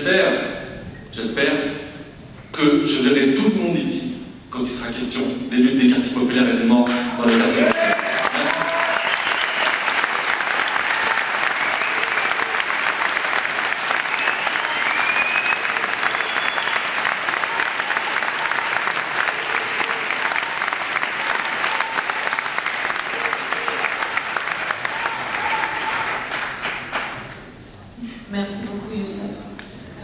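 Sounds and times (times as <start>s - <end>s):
audience applauding: 6.9s - 27.5s.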